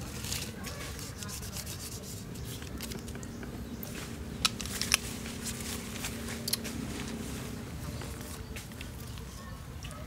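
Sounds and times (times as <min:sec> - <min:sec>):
hands rubbing mangoes: 0:00.0 - 0:03.4.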